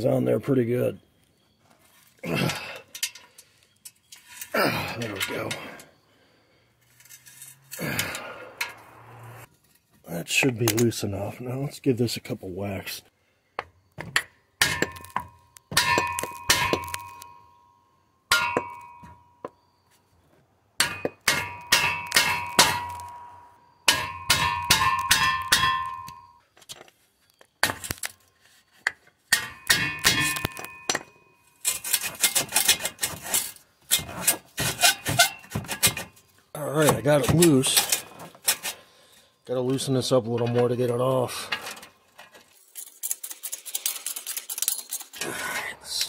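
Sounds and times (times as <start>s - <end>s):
metal exhaust tip clanging: 14.1s - 19.7s, 20.8s - 26.4s, 29.3s - 33.1s.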